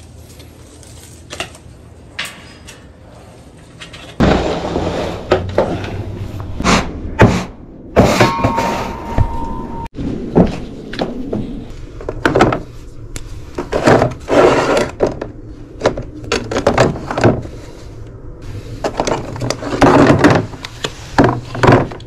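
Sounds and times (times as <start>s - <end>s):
steady tone: 4.8s - 11.9s.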